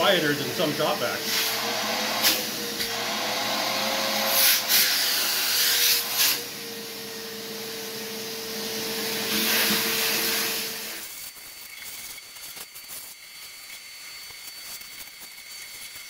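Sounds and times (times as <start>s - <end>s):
shop vacuum running: 0.0s - 11.1s.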